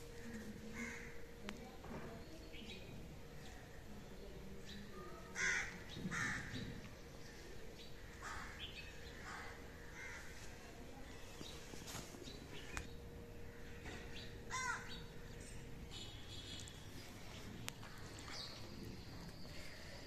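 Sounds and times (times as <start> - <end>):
crows cawing: 0.7 - 1.2, 5.3 - 6.8, 8.0 - 10.4, 13.5 - 15.0.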